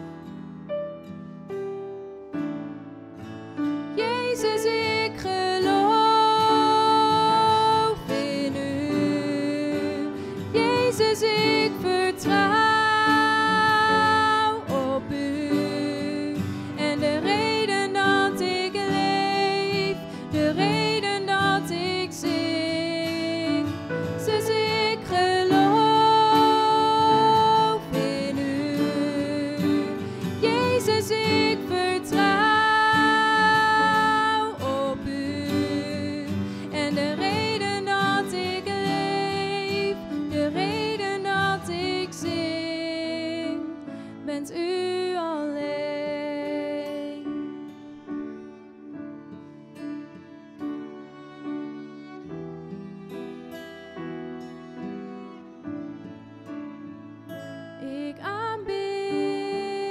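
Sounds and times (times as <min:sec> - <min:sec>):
acoustic guitar: 0:00.0 - 0:59.9
woman singing: 0:03.9 - 0:47.6, 0:57.8 - 0:59.9.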